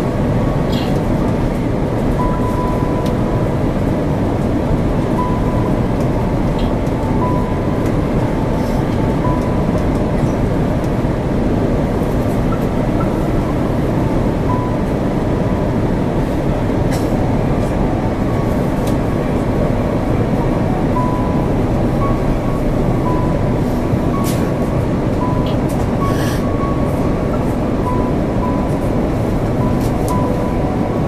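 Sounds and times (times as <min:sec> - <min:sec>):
airliner cabin roar: 0:00.0 - 0:31.0.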